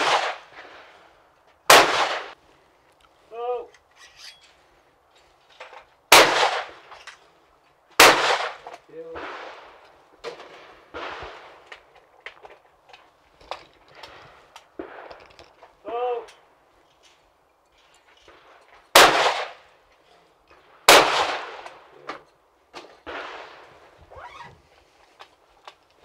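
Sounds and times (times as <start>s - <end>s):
shotgun shots with echo: 0.0s - 0.5s, 1.7s - 2.4s, 6.1s - 6.8s, 8.0s - 9.8s, 10.4s - 11.6s, 19.0s - 19.6s, 20.9s - 21.7s, 23.0s - 23.6s.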